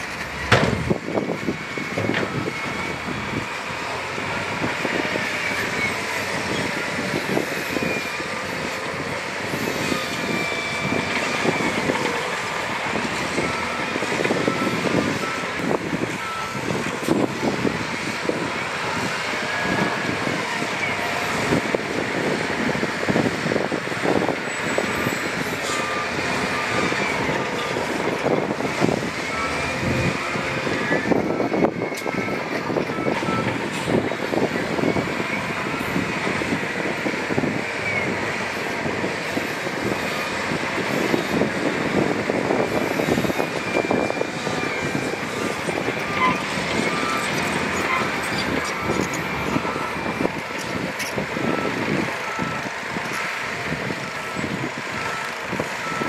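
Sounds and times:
machinery clanks and rattles: 0.0 - 2.5
diesel engines running: 0.0 - 56.0.

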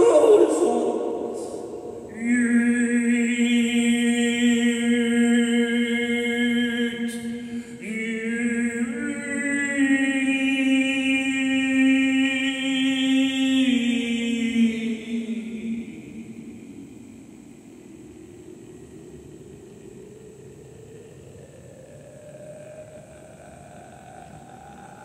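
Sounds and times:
man singing long notes: 0.0 - 16.9.

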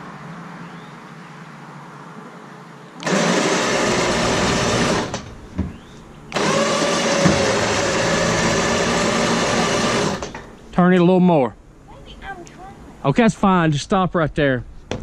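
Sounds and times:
electric winch motor whining: 3.0 - 5.4, 6.3 - 10.6.

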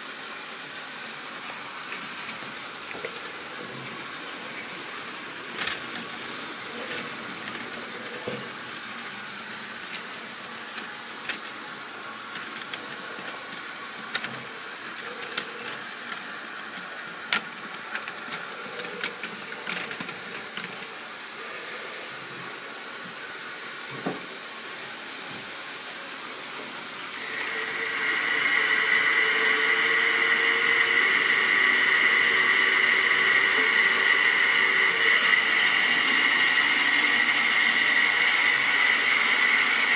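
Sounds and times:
model train motor whine: 0.0 - 23.8, 27.1 - 39.9
model train wheels on rails: 0.0 - 25.6, 26.5 - 39.9
steady hiss: 0.0 - 39.9
plastic model wagons clicking: 5.3 - 8.6, 9.8 - 21.1.

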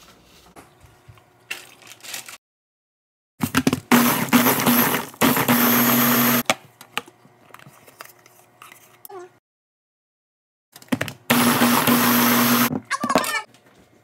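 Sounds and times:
blender motor humming: 3.9 - 6.4, 11.3 - 12.7.

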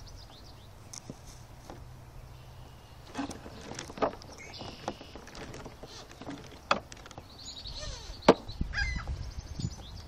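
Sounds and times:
birds chirping: 0.0 - 10.0
knocks and rattles from handling: 3.1 - 7.3.

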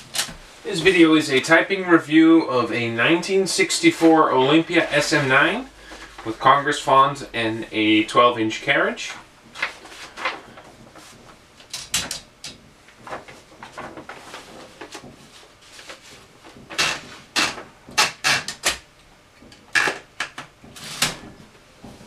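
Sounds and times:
paper rustling: 8.8 - 12.2, 12.9 - 17.3
typewriter carriage clicks and clunks: 11.6 - 12.6.

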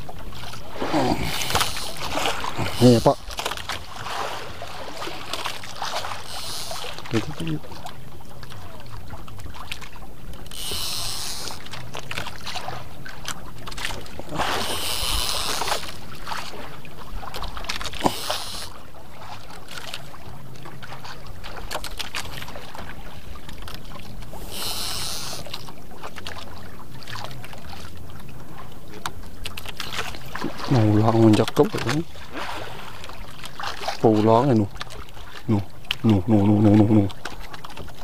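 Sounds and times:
steady low hum: 0.0 - 31.1
wind and water noise: 0.0 - 38.0
water hissing surges: 0.7 - 3.3, 6.0 - 7.6, 10.5 - 11.6, 14.2 - 16.1, 17.9 - 18.8, 24.3 - 25.6
fishing reel clicking: 1.3 - 3.6, 6.1 - 7.3, 10.4 - 12.3, 14.6 - 16.0, 17.8 - 18.8, 24.4 - 25.7.

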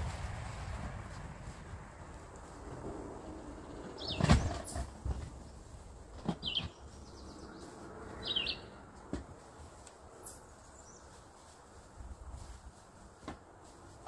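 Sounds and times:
small bird chirping: 3.6 - 4.9, 6.3 - 8.7.

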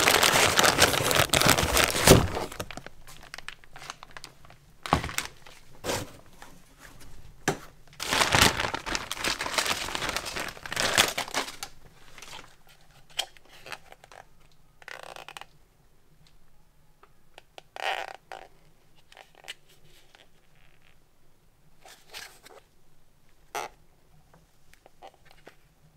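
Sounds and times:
plastic bag crinkling: 0.0 - 6.0, 8.0 - 14.2.

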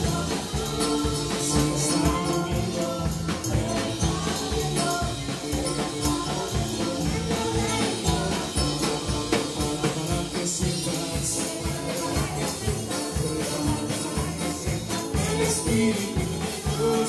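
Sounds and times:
drum kit beat: 0.0 - 17.0
electric guitar: 0.0 - 17.0
keyboard: 0.0 - 17.0
voices singing: 0.0 - 17.0.

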